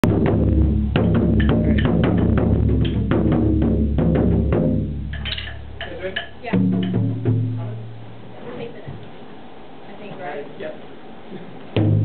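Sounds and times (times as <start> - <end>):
deep ringing drum boom: 0.0 - 8.2, 11.8 - 12.0
ensemble drumming: 0.0 - 8.4, 11.7 - 12.0.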